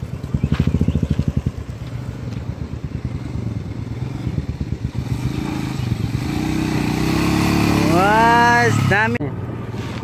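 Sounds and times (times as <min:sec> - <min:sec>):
tyres on gravel: 0:00.0 - 0:03.1
motorcycle engine thumping: 0:00.0 - 0:03.2.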